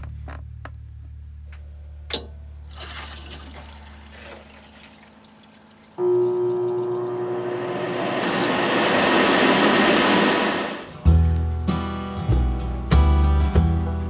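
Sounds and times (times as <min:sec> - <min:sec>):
air conditioner humming: 0:01.3 - 0:11.1.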